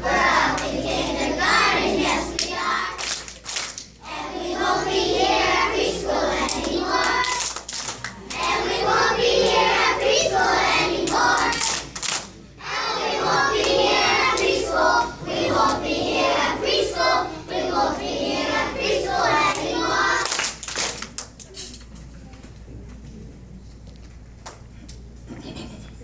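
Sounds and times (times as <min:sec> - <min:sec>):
children singing together: 0:00.0 - 0:03.0, 0:04.0 - 0:07.6, 0:08.3 - 0:12.0, 0:12.6 - 0:20.3.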